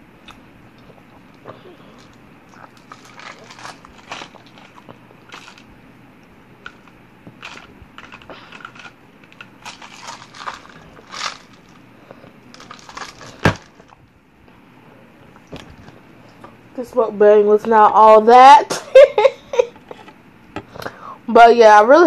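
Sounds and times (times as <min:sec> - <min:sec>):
wet chewing: 0:00.2 - 0:05.7
small clicks and crinkles: 0:02.0 - 0:05.7, 0:06.6 - 0:14.0.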